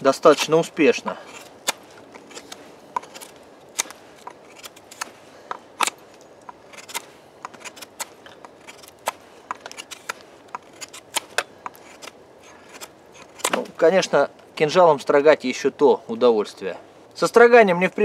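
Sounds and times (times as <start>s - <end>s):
blade shaving wood: 0.0s - 13.9s.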